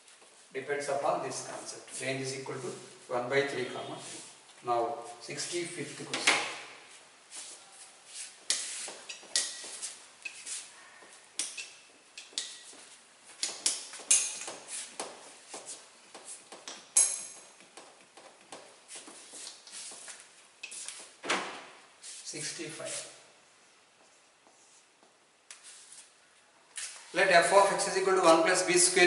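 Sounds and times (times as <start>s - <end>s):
duster wiping whiteboard: 7.3s - 10.8s, 14.5s - 16.6s, 18.2s - 21.2s, 22.0s - 23.2s, 25.6s - 26.1s.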